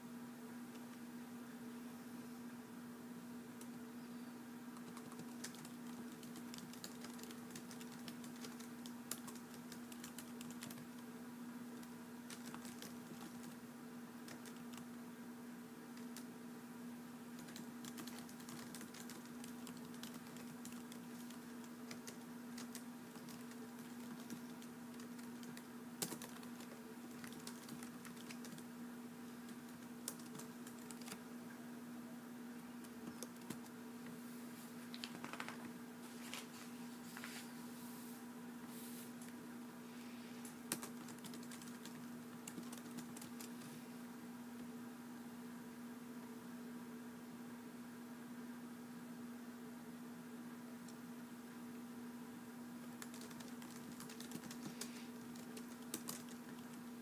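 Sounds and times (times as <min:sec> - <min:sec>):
steady low hum: 0:00.0 - 0:57.0
typing on computer keyboard: 0:04.8 - 0:11.0, 0:11.8 - 0:13.6, 0:14.3 - 0:14.9, 0:17.4 - 0:28.7, 0:29.4 - 0:31.2, 0:32.8 - 0:33.7, 0:40.7 - 0:43.7, 0:52.9 - 0:56.8.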